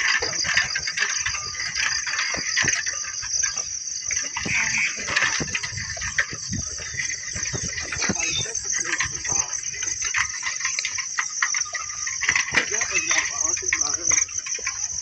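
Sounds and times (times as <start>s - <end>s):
crickets trilling: 0.0s - 15.0s
footsteps on brick path: 0.0s - 15.0s.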